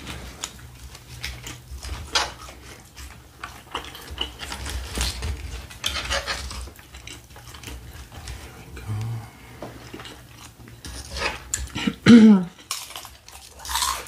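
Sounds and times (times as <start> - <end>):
tortilla chips crunching: 0.0 - 8.5, 9.8 - 14.0
forks scraping a tray: 3.8 - 7.2.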